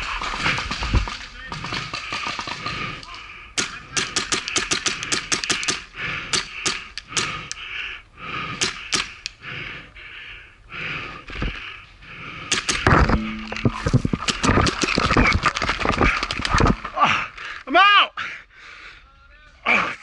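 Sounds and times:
knocks and thumps: 0:12.8 - 0:17.0.

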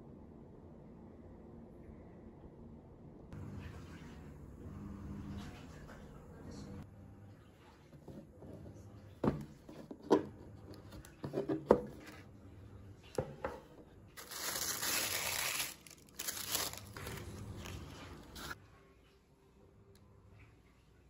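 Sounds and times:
tissue paper rustling: 0:14.2 - 0:18.6.

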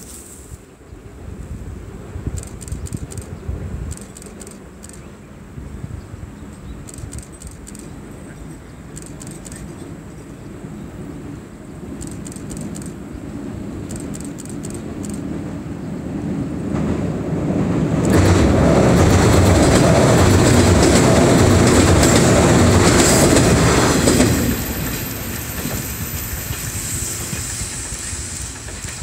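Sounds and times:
electric train rumble: 0:00.0 - 0:29.0
wheels clattering over rail joints: 0:17.9 - 0:29.0.

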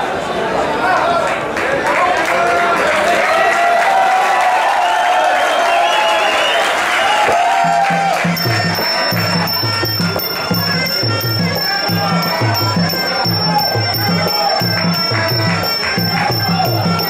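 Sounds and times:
hand drums beating: 0:07.3 - 0:17.0
reed pipe melody: 0:07.3 - 0:17.0
small cymbals ringing: 0:07.4 - 0:17.0.

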